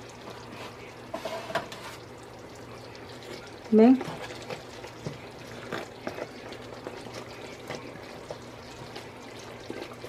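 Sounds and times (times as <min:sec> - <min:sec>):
syrup boiling and bubbling: 0:00.0 - 0:10.0.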